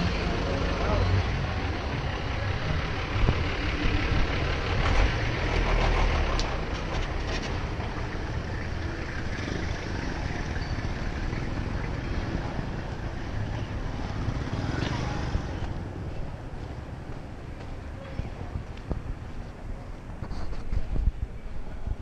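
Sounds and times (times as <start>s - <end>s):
truck engine rumbling past: 0.0s - 15.9s
vehicle passing: 0.0s - 17.5s.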